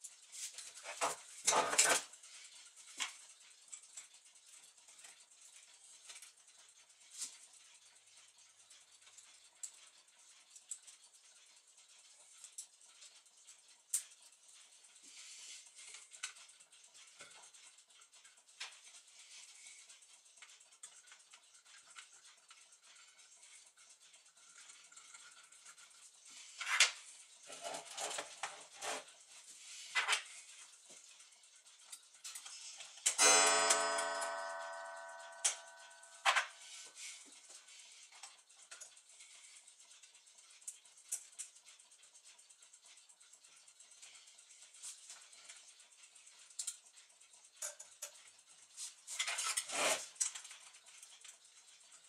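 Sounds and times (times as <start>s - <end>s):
clock parts clinking and rattling: 0.1s - 7.4s, 15.8s - 43.0s, 43.6s - 52.0s.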